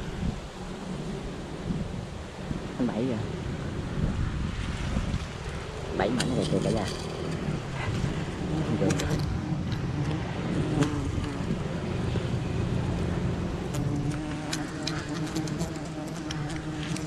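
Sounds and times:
honeybees humming: 0:05.3 - 0:17.0.

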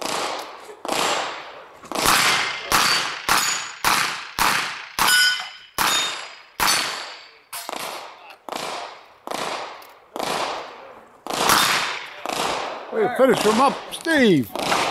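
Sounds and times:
steel targets ringing: 0:02.3 - 0:03.9, 0:05.0 - 0:07.8.

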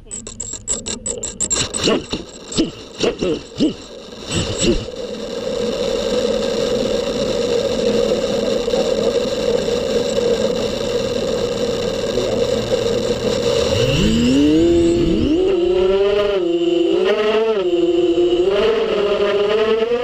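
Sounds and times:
drone motors whining: 0:00.0 - 0:20.0.

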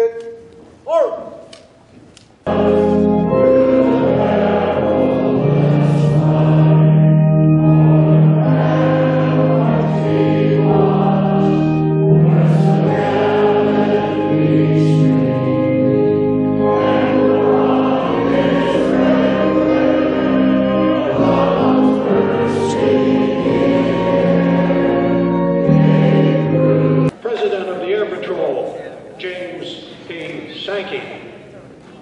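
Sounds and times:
choir singing an anthem: 0:02.5 - 0:27.1
instrumental accompaniment: 0:02.5 - 0:27.1.

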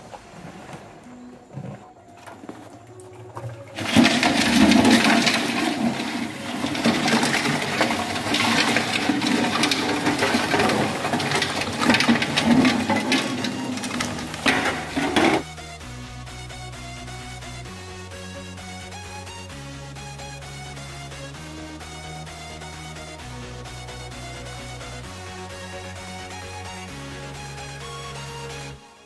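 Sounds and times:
water pouring into metal pot: 0:03.1 - 0:15.4.

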